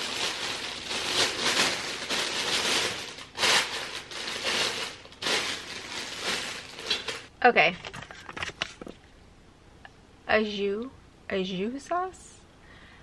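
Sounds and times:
plastic liner crinkling: 0.0 - 9.1.

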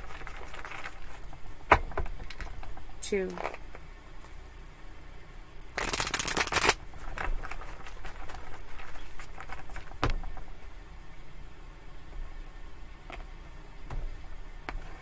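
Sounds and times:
cards being shuffled: 5.8 - 10.4.

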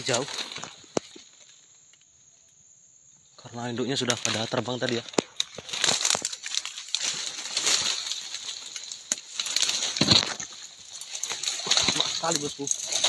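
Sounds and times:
footsteps crunching through leaves: 0.0 - 1.4, 4.3 - 13.0
high-pitched insect chorus: 0.0 - 13.0.

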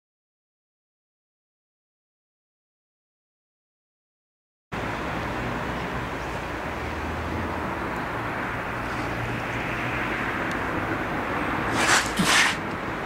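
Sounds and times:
traffic noise: 4.7 - 13.0
faint low engine hum: 4.8 - 13.0.

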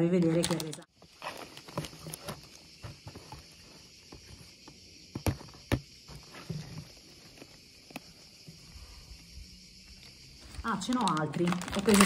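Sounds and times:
plastic bottles clicking and knocking: 0.2 - 3.4, 10.6 - 12.0.

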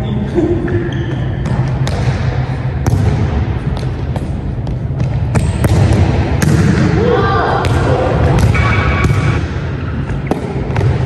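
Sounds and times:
low hum of hall: 0.0 - 11.0.

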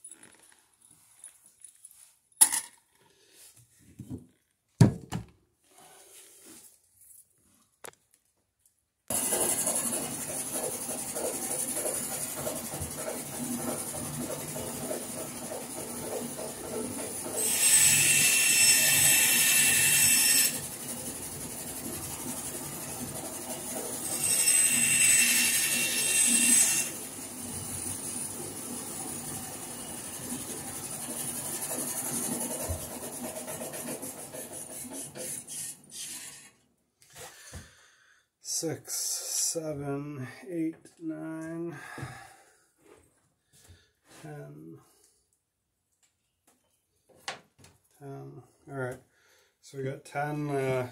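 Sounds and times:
bandsaw running: 9.1 - 36.5
bandsaw cutting wood: 9.1 - 36.6.

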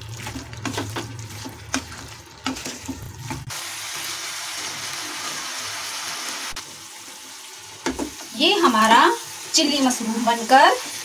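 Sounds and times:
wooden spatula scraping pan: 0.0 - 3.5
sauce sizzling in hot pan: 0.0 - 11.0.

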